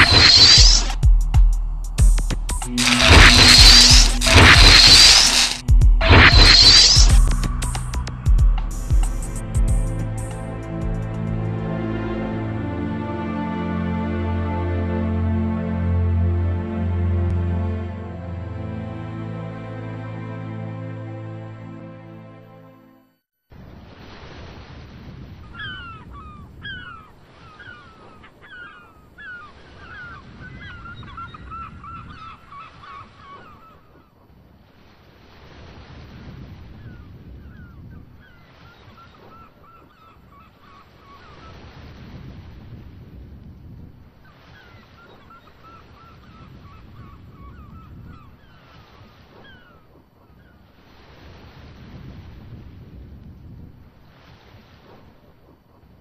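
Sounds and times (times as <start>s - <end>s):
quavering bird calls: 25.5s - 34.2s, 36.8s - 41.6s, 44.2s - 50.8s.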